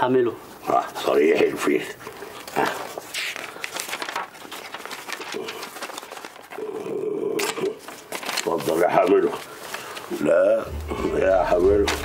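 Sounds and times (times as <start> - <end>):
paper crackling and tearing: 2.2 - 12.0.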